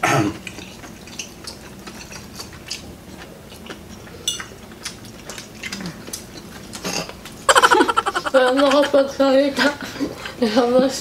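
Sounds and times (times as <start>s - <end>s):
cutlery clicking on plates: 3.6s - 7.2s.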